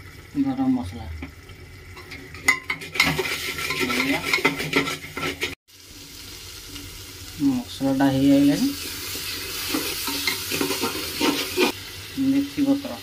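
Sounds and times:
sizzling in oil: 0:00.0 - 0:13.0
spatula stirring and scraping: 0:02.0 - 0:05.6, 0:08.8 - 0:11.8.

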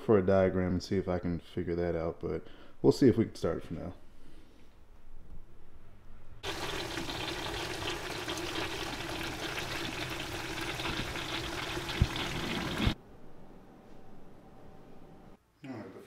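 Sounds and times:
hose water splashing into tank: 0:06.4 - 0:13.0.

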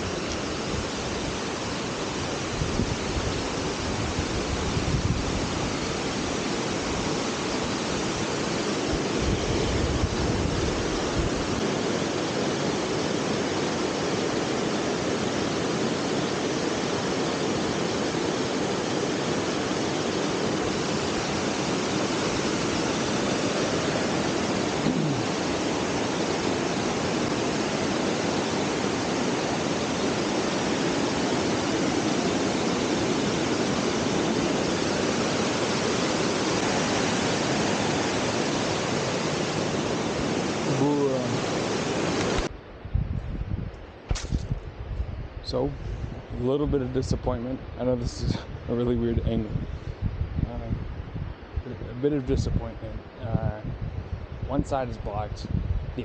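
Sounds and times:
waterfall rushing over rock: 0:00.0 - 0:42.5
wind buffeting microphone: 0:00.0 - 0:56.0.

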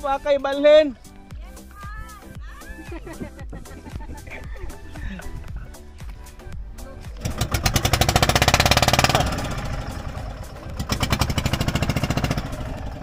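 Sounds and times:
small engine running: 0:07.2 - 0:13.0.

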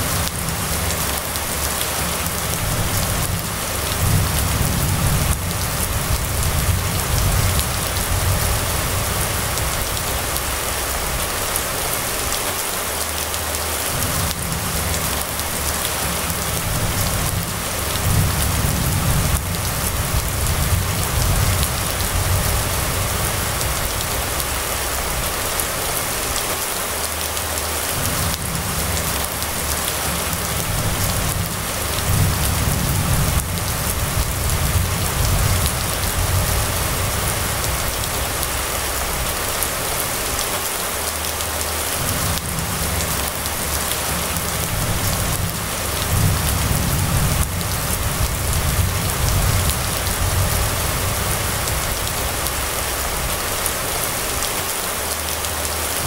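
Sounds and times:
rain falling on wet street: 0:00.0 - 0:56.0
low rumble: 0:28.0 - 0:39.8.

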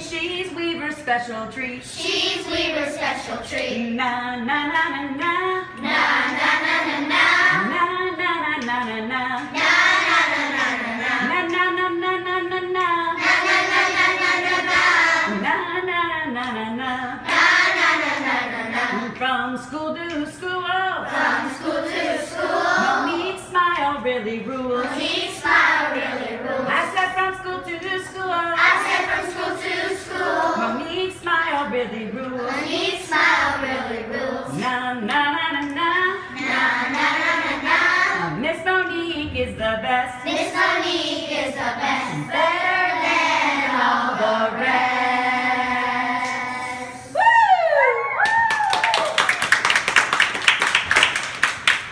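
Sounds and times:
children singing a chant: 0:02.0 - 0:03.9, 0:05.8 - 0:07.8, 0:09.5 - 0:11.3, 0:13.2 - 0:15.4, 0:17.2 - 0:19.2, 0:21.0 - 0:23.3, 0:24.7 - 0:26.7, 0:28.6 - 0:30.8, 0:32.3 - 0:34.7, 0:36.3 - 0:38.4, 0:40.2 - 0:47.2.

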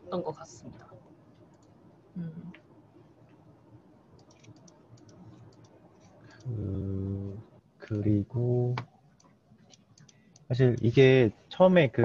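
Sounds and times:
computer keyboard clicking: 0:04.2 - 0:06.5, 0:09.2 - 0:10.9
brief vocal hum: 0:06.4 - 0:07.4
man humming: 0:06.4 - 0:07.4.

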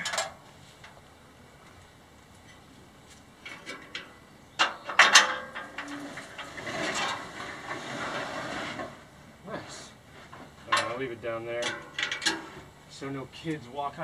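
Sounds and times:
metal frame clanking and rattling: 0:00.0 - 0:01.0, 0:03.4 - 0:09.1, 0:10.3 - 0:12.8.

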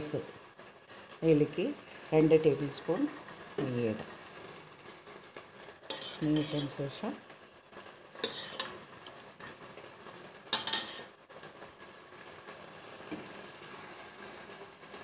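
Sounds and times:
faint sizzle: 0:00.0 - 0:15.0
spoon scraping metal pot: 0:05.8 - 0:06.8, 0:08.2 - 0:08.8, 0:10.6 - 0:11.1.

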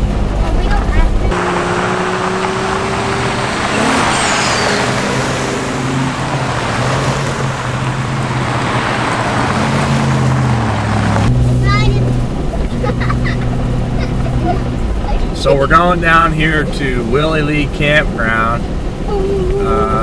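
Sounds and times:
vehicle engine hum: 0:00.0 - 0:20.0
tyre noise: 0:01.2 - 0:11.9.

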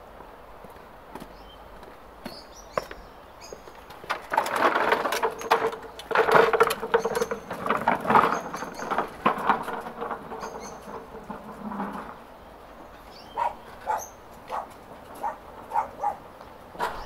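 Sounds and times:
lawnmower rattling on pavement: 0:03.4 - 0:17.0.

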